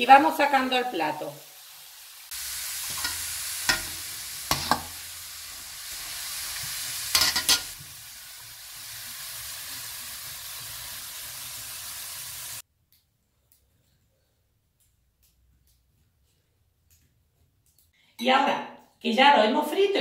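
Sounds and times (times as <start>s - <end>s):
dough deep-frying in oil: 1.0s - 12.7s
metal spoon clinking on pan: 2.9s - 5.0s, 7.1s - 7.8s.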